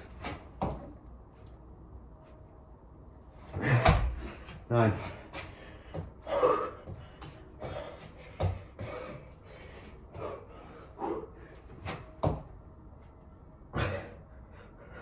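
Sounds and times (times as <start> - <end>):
heavy exhaled breaths: 3.5 - 11.9, 13.7 - 15.0.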